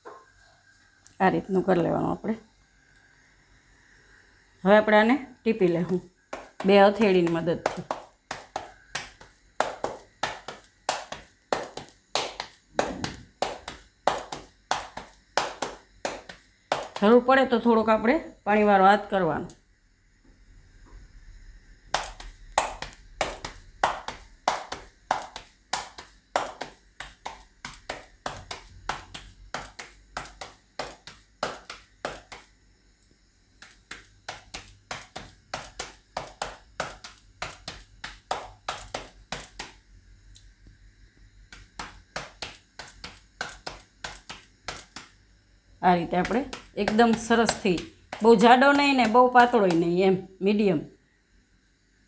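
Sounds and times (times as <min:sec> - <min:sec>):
dough slapped between palms: 0:05.8 - 0:17.2, 0:21.9 - 0:32.6, 0:33.6 - 0:39.8, 0:41.5 - 0:45.2, 0:46.1 - 0:50.0.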